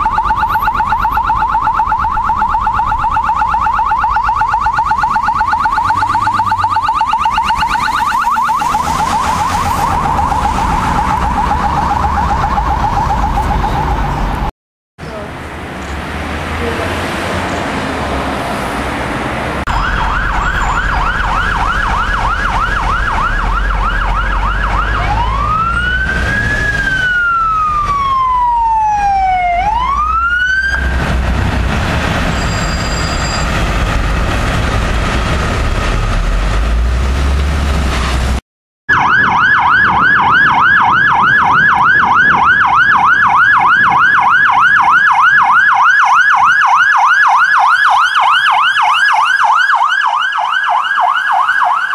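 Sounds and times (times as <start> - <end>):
police siren fast yelp: 0.0 - 14.3, 19.7 - 30.8, 38.9 - 51.9
police siren slow wail: 0.0 - 14.5, 19.6 - 32.1, 38.9 - 51.9
siren quick chirps: 0.0 - 14.5, 19.7 - 30.9, 32.2 - 33.6
low vehicle rumble: 1.2 - 38.4.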